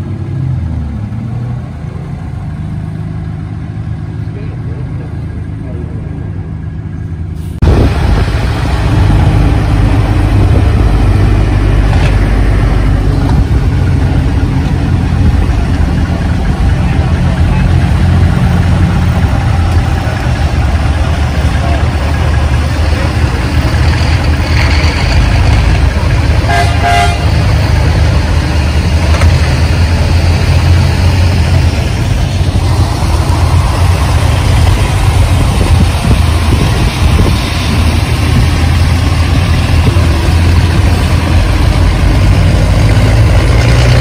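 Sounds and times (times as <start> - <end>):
truck engines running low: 0.0 - 44.0
horn short toots: 26.5 - 27.4.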